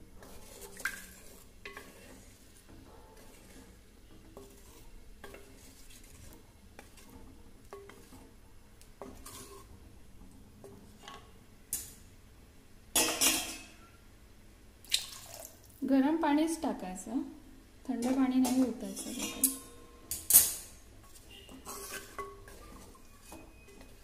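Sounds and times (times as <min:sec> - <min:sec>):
wooden spatula scraping clay pot: 0:00.0 - 0:11.4, 0:21.0 - 0:24.0.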